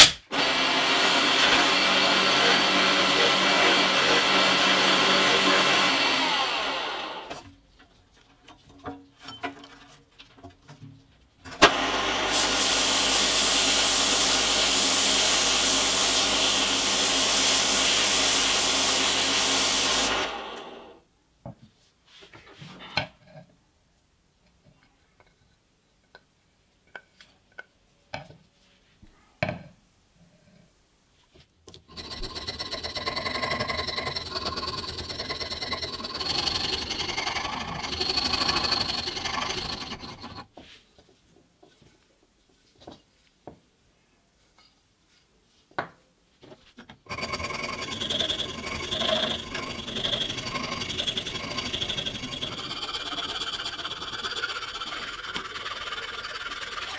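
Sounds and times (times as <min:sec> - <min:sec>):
rasp filing wood: 0:00.4 - 0:07.2, 0:31.9 - 0:40.5, 0:47.1 - 0:56.9.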